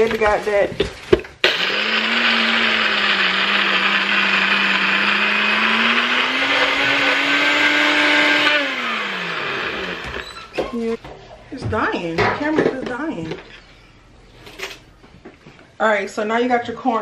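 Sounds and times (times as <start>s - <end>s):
blender grinding snacks: 1.4s - 10.2s.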